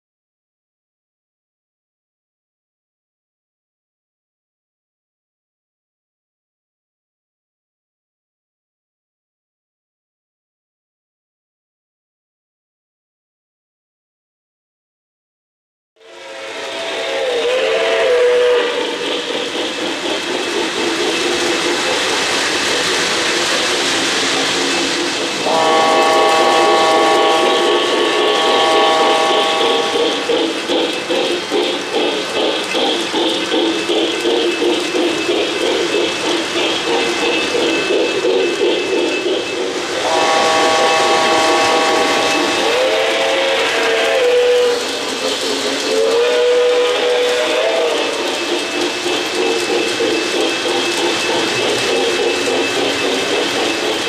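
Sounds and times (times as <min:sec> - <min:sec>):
model steam whistle: 0:16.0 - 0:19.0, 0:25.4 - 0:30.3, 0:40.0 - 0:45.0, 0:45.8 - 0:48.3
model trains rumbling and clattering: 0:16.0 - 0:54.0.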